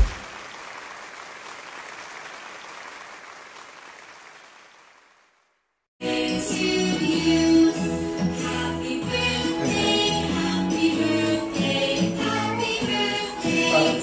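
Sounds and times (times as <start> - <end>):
applause: 0.0 - 5.6
music: 6.0 - 14.0.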